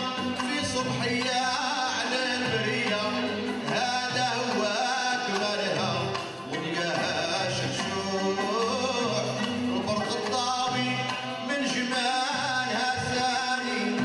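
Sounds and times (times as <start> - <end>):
men singing: 0.0 - 14.0
violins and oud melody: 0.0 - 14.0.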